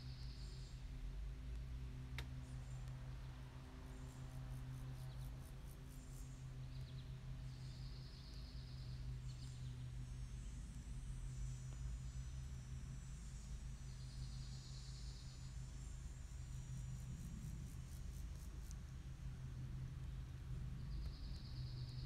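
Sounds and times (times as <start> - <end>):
insects chirping: 2.4 - 19.3.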